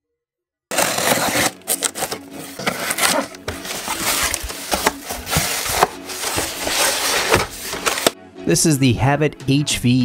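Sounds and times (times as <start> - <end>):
cardboard scraping and rustling: 0.7 - 8.2
tape being slit: 0.7 - 8.2.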